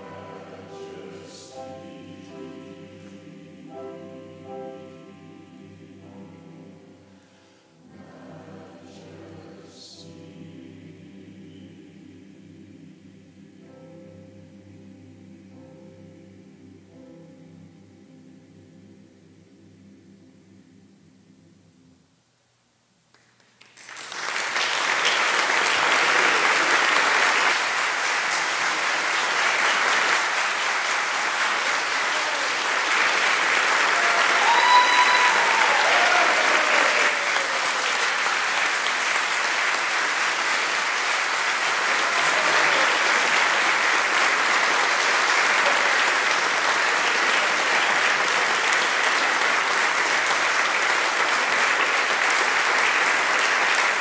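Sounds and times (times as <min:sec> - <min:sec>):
audience applause: 0:23.2 - 0:54.0.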